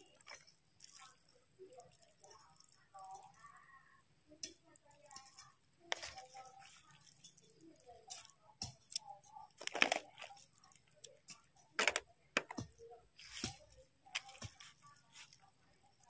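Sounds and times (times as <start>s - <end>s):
mouth chewing noodles: 0.0s - 3.7s.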